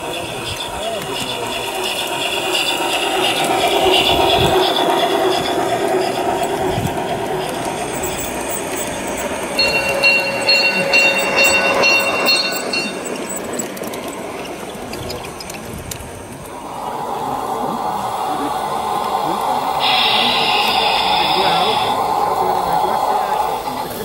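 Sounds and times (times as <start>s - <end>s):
model train wheels rattling on rails: 0.0s - 24.0s
regular high ticking: 0.5s - 15.7s.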